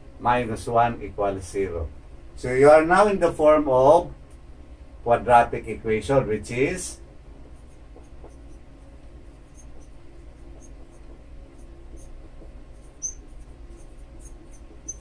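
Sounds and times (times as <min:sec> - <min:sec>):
low steady hum: 0:00.0 - 0:15.0
marker squeaking on whiteboard: 0:07.5 - 0:15.0.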